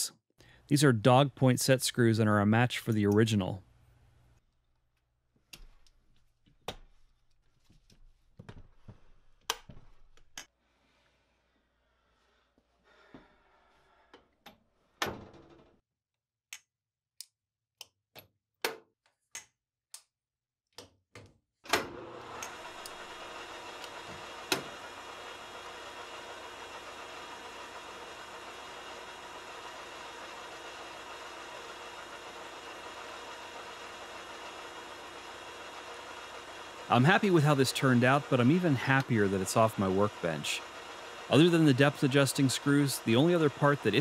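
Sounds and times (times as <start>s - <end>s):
metal lathe running: 22.0s - 44.0s.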